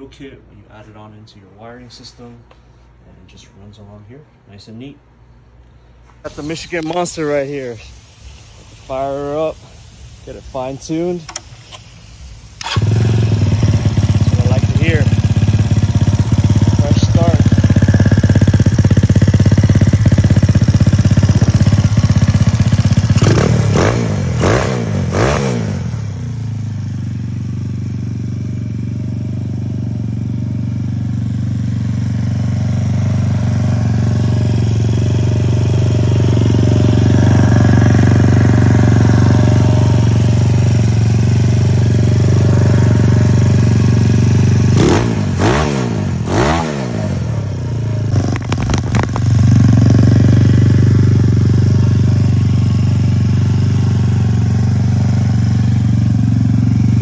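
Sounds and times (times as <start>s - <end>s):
engine revving: 12.6s - 26.6s, 31.9s - 57.0s
scooter engine idling: 12.6s - 57.0s.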